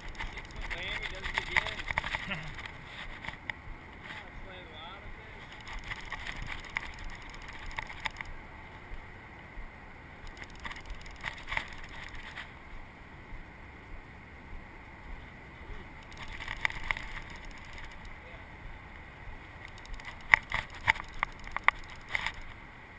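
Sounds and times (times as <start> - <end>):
fishing reel clicking: 0.0 - 3.4, 5.5 - 8.3, 10.2 - 12.5, 16.0 - 18.3, 19.6 - 22.5
river flowing: 0.0 - 22.9
wind: 0.0 - 22.9.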